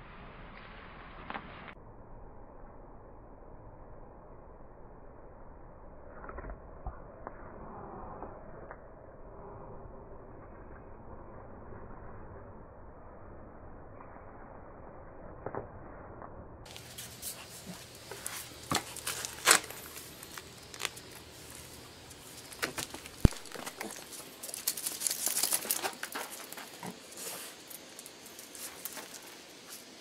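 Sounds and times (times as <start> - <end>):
dog claws clicking on concrete: 16.7 - 29.4
crackly rustling: 16.7 - 30.0.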